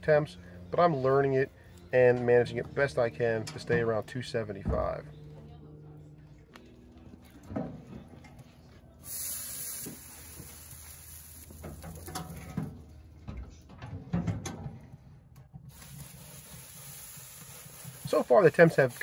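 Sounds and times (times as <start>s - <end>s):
spray bottle hissing: 9.0s - 11.6s, 15.7s - 19.0s.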